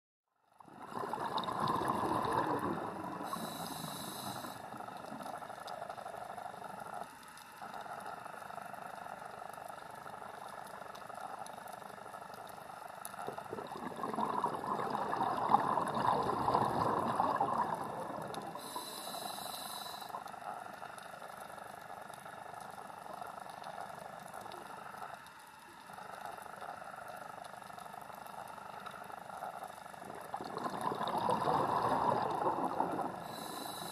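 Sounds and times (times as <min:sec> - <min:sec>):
exhaled bubbles rushing: 0:00.6 - 0:03.7, 0:13.2 - 0:18.9, 0:30.0 - 0:33.6
inhaled air hiss: 0:01.9 - 0:05.0, 0:14.8 - 0:20.3, 0:30.1 - 0:33.9.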